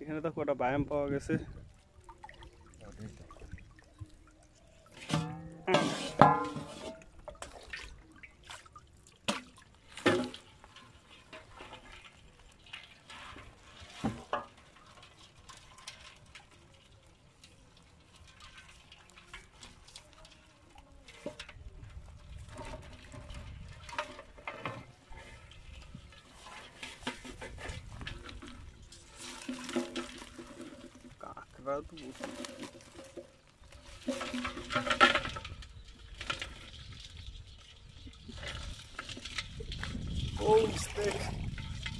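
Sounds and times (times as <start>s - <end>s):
water splashing and sloshing: 0.2s - 41.9s
knocks on metal basin: 5.1s - 7.0s.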